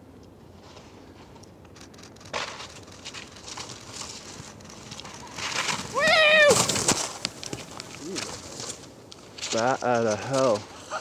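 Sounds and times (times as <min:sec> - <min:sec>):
skis swishing through snow: 0:02.4 - 0:11.0.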